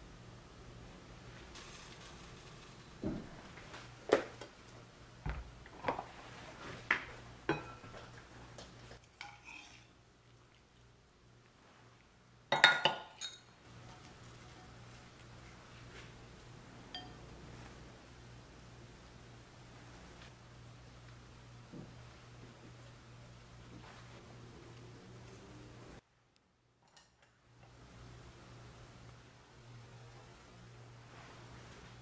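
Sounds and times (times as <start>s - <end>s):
utensils clinking on ceramic bowl: 7.5s - 8.2s, 9.0s - 9.9s, 12.5s - 14.8s, 16.9s - 17.2s.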